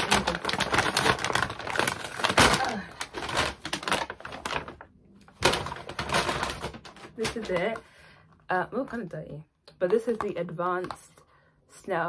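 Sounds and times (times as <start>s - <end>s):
paper tearing: 0.0s - 4.8s
paper mailer crackling rustle: 0.0s - 7.8s.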